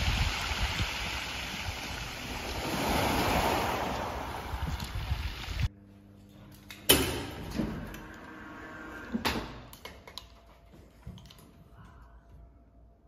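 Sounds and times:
wind on microphone: 0:00.0 - 0:05.7
waves washing onto pebble beach: 0:00.8 - 0:05.7
metal lift gate clanging shut: 0:06.8 - 0:08.1.

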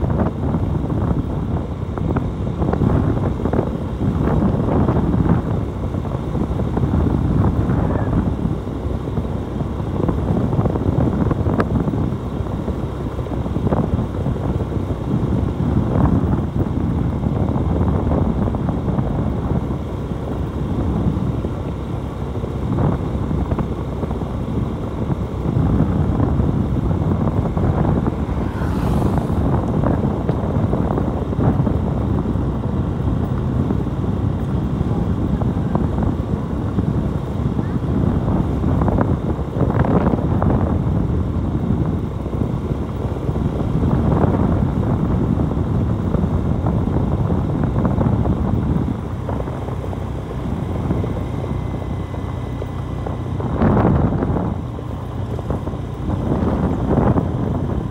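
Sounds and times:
wind rushing over microphone: 0:00.0 - 0:57.9
motorcycle engine: 0:13.6 - 0:45.9.

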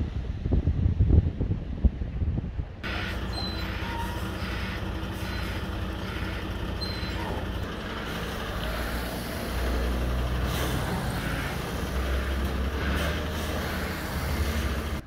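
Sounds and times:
diesel engine running: 0:02.8 - 0:15.0.

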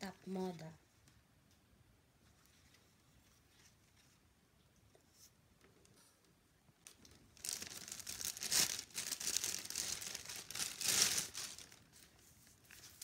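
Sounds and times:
plastic bag crinkling: 0:06.8 - 0:13.0.

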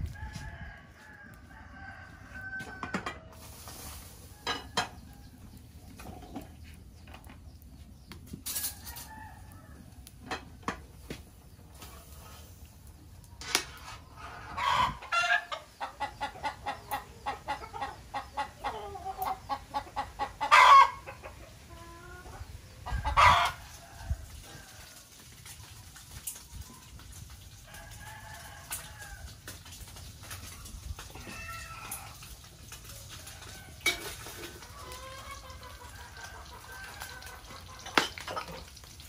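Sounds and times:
chickens clucking: 0:13.3 - 0:24.9, 0:30.2 - 0:38.8.

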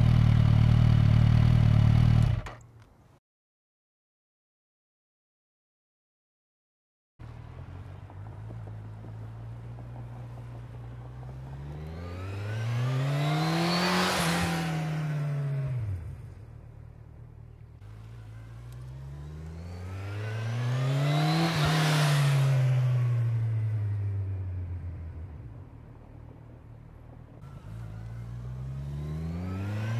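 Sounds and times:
motorcycle accelerating past: 0:07.3 - 0:16.4, 0:18.0 - 0:25.7, 0:27.4 - 0:29.9.

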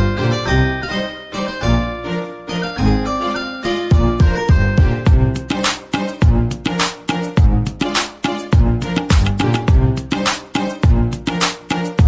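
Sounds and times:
background music with drum beat: 0:03.9 - 0:12.0.

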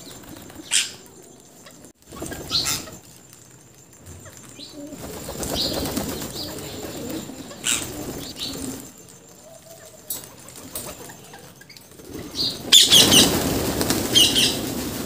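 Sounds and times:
parakeets screeching: 0:00.0 - 0:01.1, 0:02.1 - 0:03.0, 0:05.1 - 0:08.9, 0:12.3 - 0:14.7
flock flapping wings: 0:00.0 - 0:15.0
parakeets shrill calls: 0:00.6 - 0:01.1, 0:02.1 - 0:03.0, 0:05.4 - 0:08.8.

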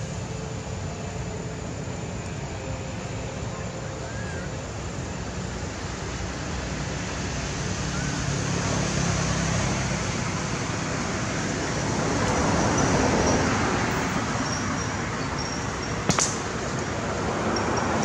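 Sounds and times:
road traffic engine hum: 0:00.0 - 0:18.0
vehicle passing: 0:06.0 - 0:18.0.

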